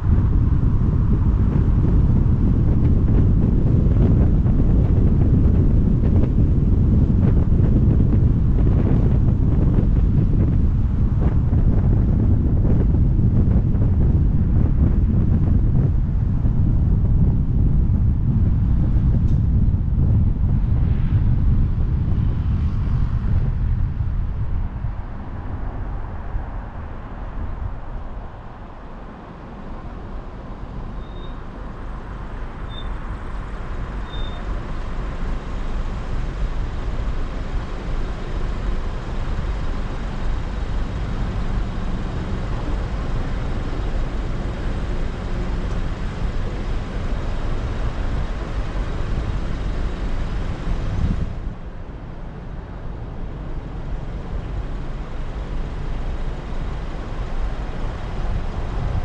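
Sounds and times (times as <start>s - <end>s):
city traffic noise: 0.0s - 59.0s
car engine: 25.1s - 59.0s.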